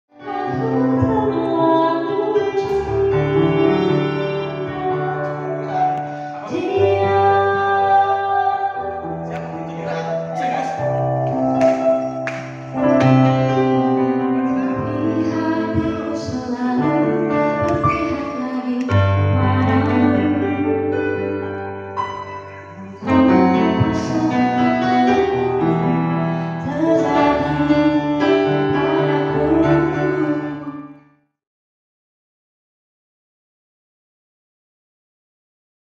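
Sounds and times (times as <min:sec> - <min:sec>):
electric keyboard chords: 0:00.1 - 0:31.0
person singing a slow pop ballad: 0:00.2 - 0:10.1, 0:13.2 - 0:30.9.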